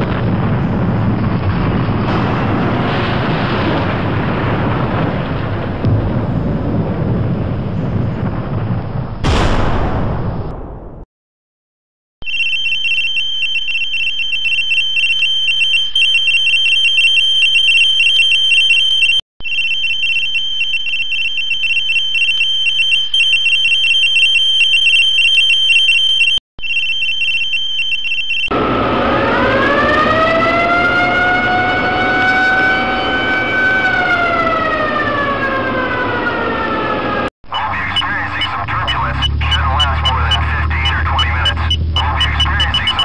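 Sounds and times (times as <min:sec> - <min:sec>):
high-pitched electronic alarm tone: 0:12.2 - 0:28.7, 0:37.8 - 0:43.0
siren winding up: 0:12.2 - 0:37.3.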